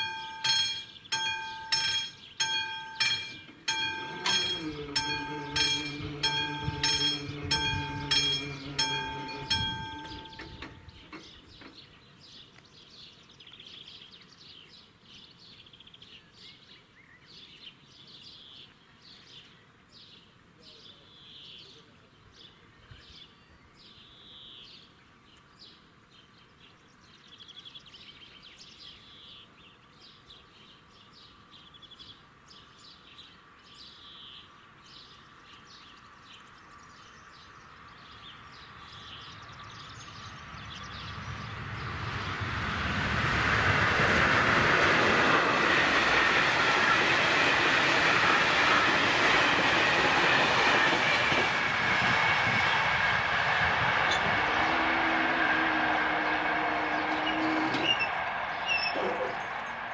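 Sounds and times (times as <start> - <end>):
approaching train: 0.0 - 14.6, 34.5 - 59.9
birds singing: 0.0 - 42.4, 54.0 - 59.9
faint outdoor background noise: 0.0 - 59.9.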